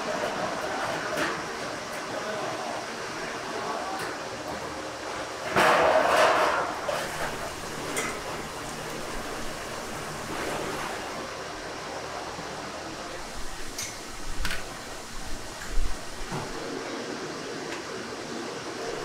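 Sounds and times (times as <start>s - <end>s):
kitchen rushing noise: 5.5s - 11.3s, 13.0s - 16.8s.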